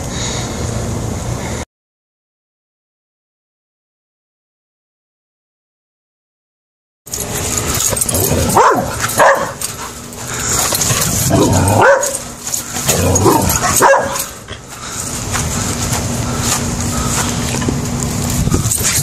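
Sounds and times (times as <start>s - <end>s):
dog barking: 8.3s - 9.7s, 11.3s - 12.2s, 13.2s - 14.4s.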